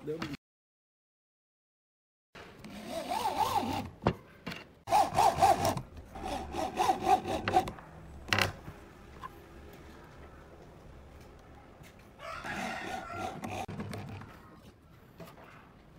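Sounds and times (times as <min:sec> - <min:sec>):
power drill motor whining: 0:12.5 - 0:13.7.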